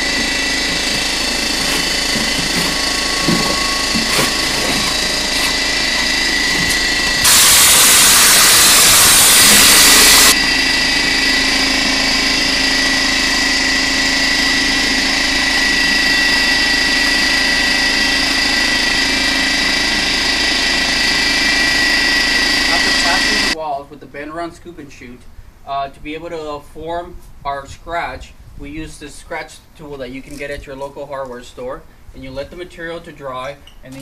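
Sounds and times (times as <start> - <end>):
air compressor running: 0.0 - 23.6
hiss of spray gun: 7.2 - 10.4.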